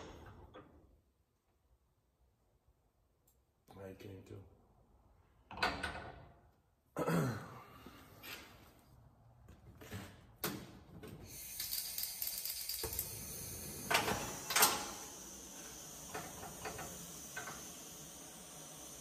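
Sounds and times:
gas torch hissing: 0:11.2 - 0:19.0.

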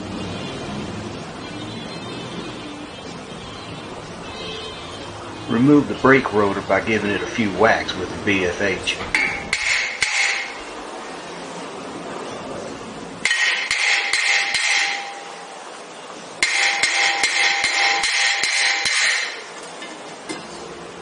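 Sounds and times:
hammer striking metal rotor: 0:08.8 - 0:10.9, 0:13.2 - 0:15.5, 0:16.4 - 0:20.5.

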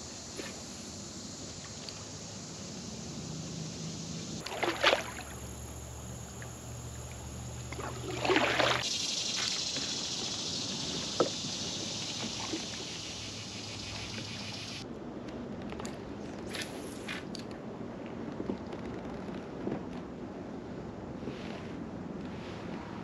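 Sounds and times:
water lapping around kayak: 0:00.0 - 0:23.0
loud splashes: 0:04.4 - 0:05.5, 0:07.7 - 0:08.9.

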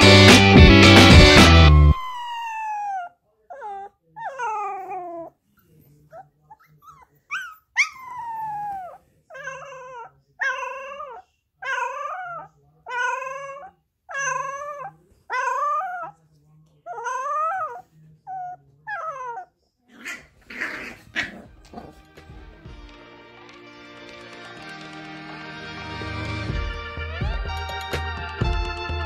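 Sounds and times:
puppy howling: 0:01.1 - 0:05.3, 0:07.3 - 0:16.1, 0:16.9 - 0:19.5.

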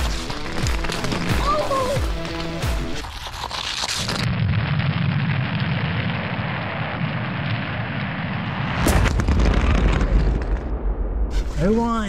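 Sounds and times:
rumbling and scraping on microphone: 0:10.2 - 0:12.0.

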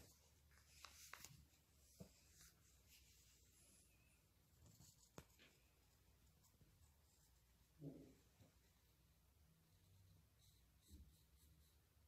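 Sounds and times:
pencil scratching on paper: 0:09.7 - 0:12.0.

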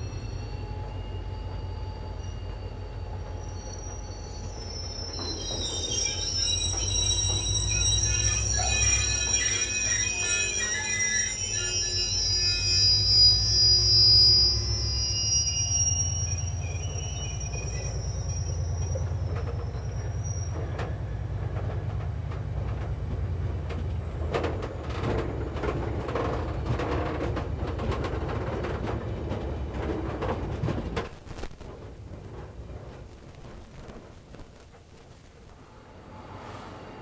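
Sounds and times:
wheels squealing: 0:00.0 - 0:22.8
train rumbling past: 0:00.0 - 0:37.0
wheels clicking over rail joints: 0:18.8 - 0:35.7.

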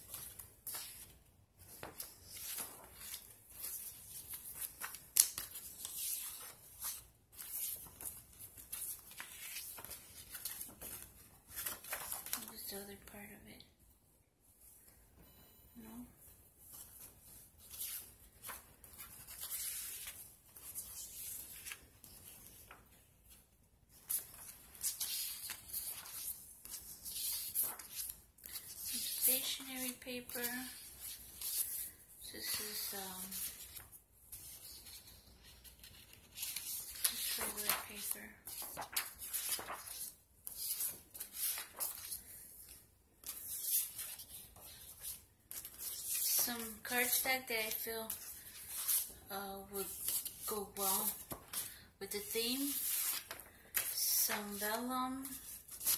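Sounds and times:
paper rustling and sliding: 0:16.7 - 0:49.1, 0:52.6 - 0:55.9.

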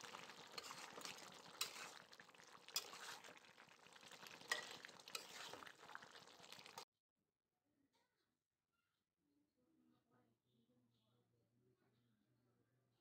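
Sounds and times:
faint sizzle: 0:00.0 - 0:06.8
spatula scraping a pan: 0:00.0 - 0:06.8.

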